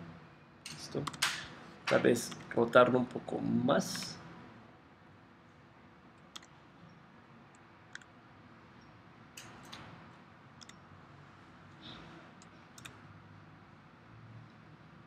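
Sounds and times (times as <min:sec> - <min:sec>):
low room hiss: 0:00.0 - 0:15.0
mouse and keyboard clicks: 0:06.3 - 0:06.5, 0:12.4 - 0:13.0.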